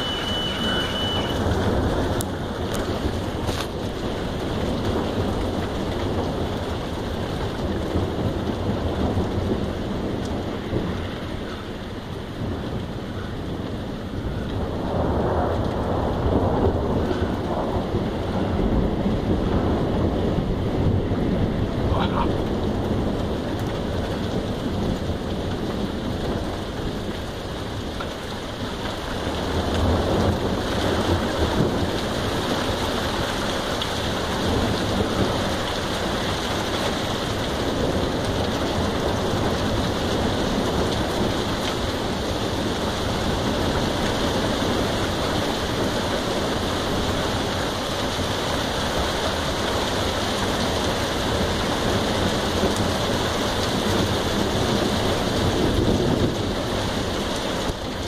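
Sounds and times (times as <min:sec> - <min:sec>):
heavy rain falling: 0:00.0 - 0:58.0
thunder rumble: 0:00.0 - 0:58.0.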